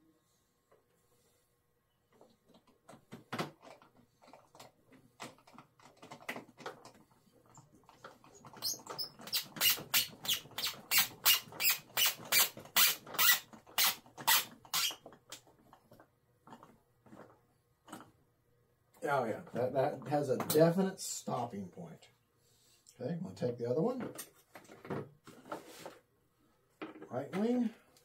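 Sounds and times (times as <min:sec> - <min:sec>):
sharp screwdriver strokes: 0:08.6 - 0:15.0.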